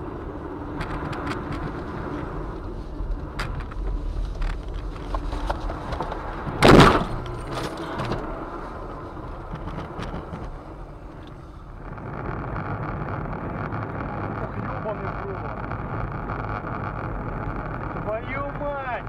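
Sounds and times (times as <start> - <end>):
car road rumble: 0.0 - 19.0
small knocks and rattles: 0.7 - 18.5
loud car crash: 6.4 - 8.3.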